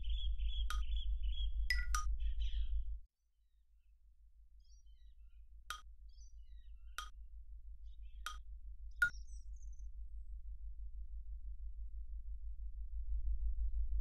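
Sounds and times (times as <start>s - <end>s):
bright chime strikes: 1.7s - 2.0s
low bass pulse: 10.2s - 14.0s.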